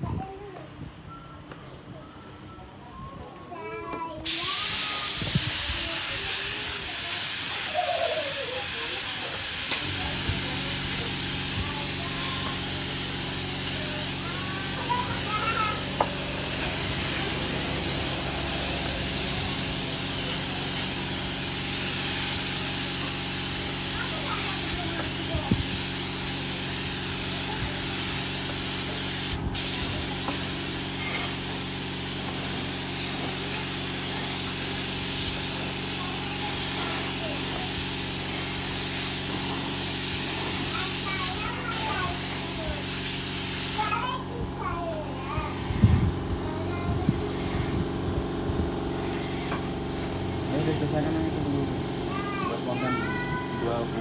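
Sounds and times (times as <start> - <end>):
spray gun hissing: 4.2 - 44.1
low mechanical hum: 9.6 - 31.7, 44.0 - 54.0.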